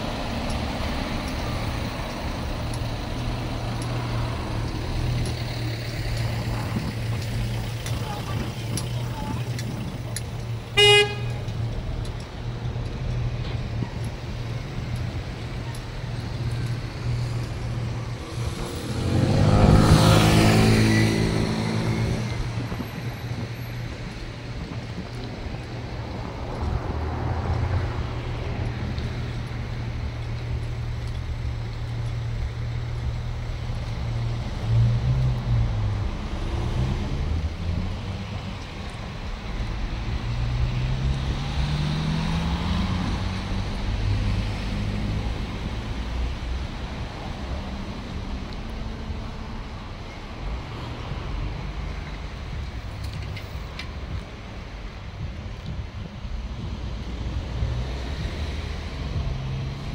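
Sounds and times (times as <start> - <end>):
vehicle speeding up: 18.0 - 22.6, 40.2 - 46.2
car passing close by: 18.1 - 22.8.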